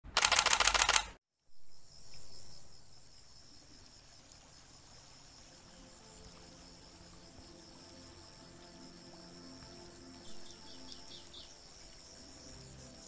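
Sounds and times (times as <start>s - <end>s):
forest ambience: 0.0s - 13.0s
camera shutter clicks: 0.1s - 1.2s
high-pitched insect drone: 4.5s - 13.0s.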